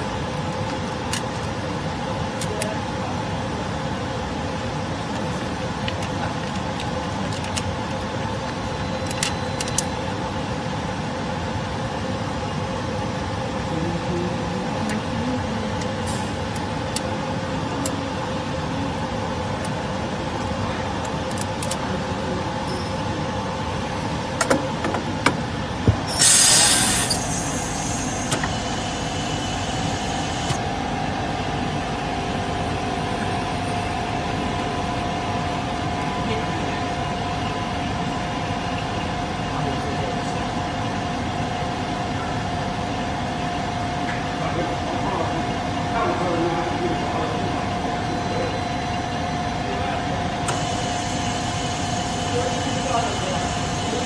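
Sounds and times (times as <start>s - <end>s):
laminating machine running: 0.0s - 43.7s, 44.4s - 54.0s
steady hum tone: 0.0s - 54.0s
air hiss burst: 26.1s - 28.4s.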